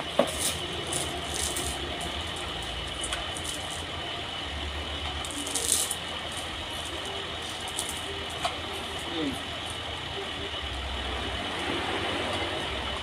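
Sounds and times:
sawmill machinery humming: 0:00.0 - 0:13.0.

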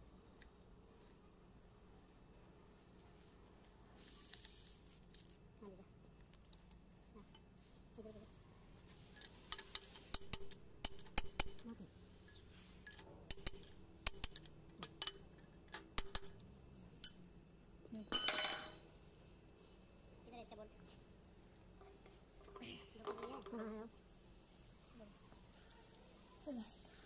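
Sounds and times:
metal rattle: 0:09.1 - 0:17.2
socket tapping on steel: 0:09.5 - 0:11.7, 0:13.3 - 0:16.4.

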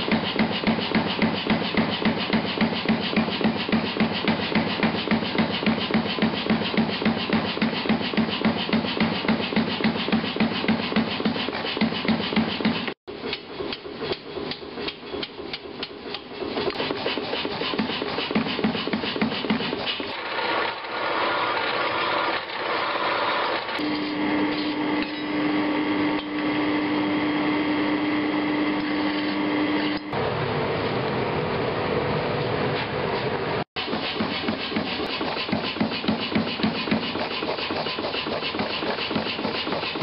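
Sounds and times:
hammering on steel: 0:33.8 - 0:40.0.

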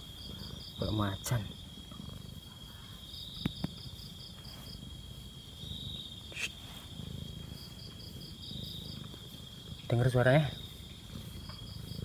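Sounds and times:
cat purring: 0:00.0 - 0:12.0
crickets chirring: 0:00.0 - 0:12.0.

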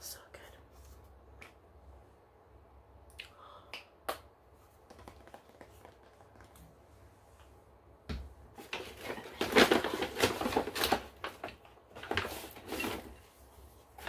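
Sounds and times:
tapping and clicking: 0:04.9 - 0:06.5
rustling: 0:08.5 - 0:14.0.

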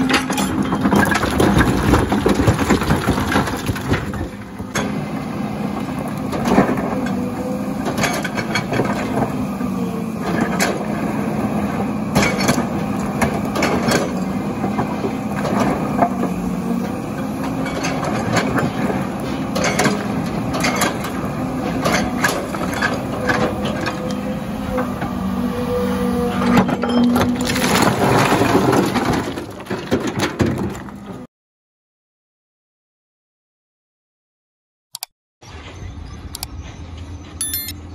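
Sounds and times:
excavator diesel engine running: 0:00.0 - 0:31.2
stones clattering against bucket: 0:00.8 - 0:04.3.

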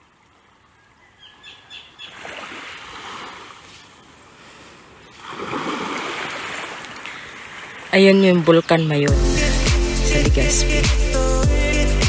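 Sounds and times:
bird chirps: 0:00.8 - 0:02.2
waves washing onto shore: 0:02.1 - 0:08.2.

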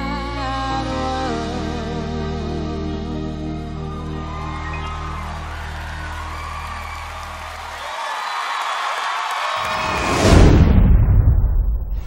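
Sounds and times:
studio audience cheering: 0:03.8 - 0:10.7.

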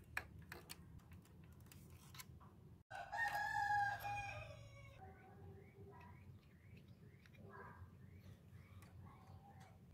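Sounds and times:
rooster crowing: 0:02.9 - 0:05.0.

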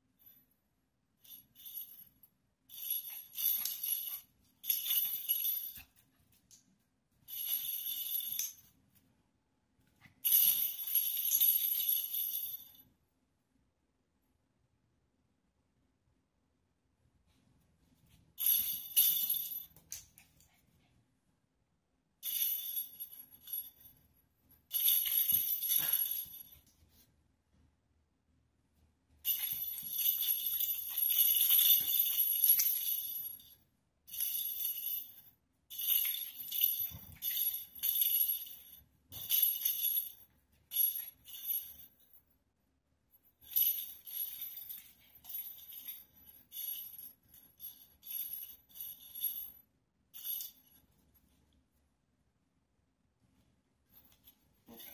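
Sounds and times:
small bells jingling: 0:01.2 - 0:06.1, 0:07.3 - 0:08.7, 0:10.2 - 0:12.9, 0:18.4 - 0:20.2, 0:22.2 - 0:26.7, 0:29.2 - 0:42.2, 0:43.3 - 0:49.6, 0:50.2 - 0:50.9.

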